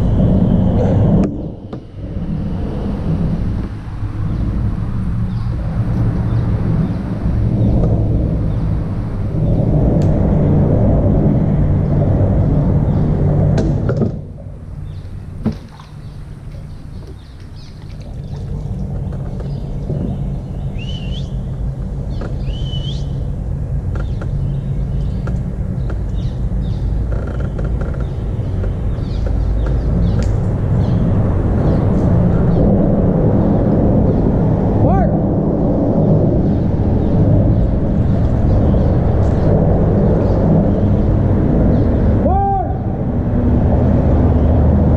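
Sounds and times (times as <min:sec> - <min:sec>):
traffic rumble on bridge: 0:00.0 - 0:44.9
bird chirping: 0:14.8 - 0:23.3, 0:24.0 - 0:32.6.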